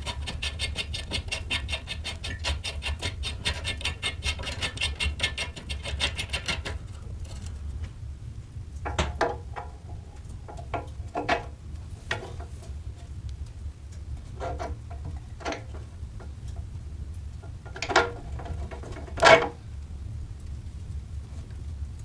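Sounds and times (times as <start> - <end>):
rapid metallic clicking: 0.0 - 7.5.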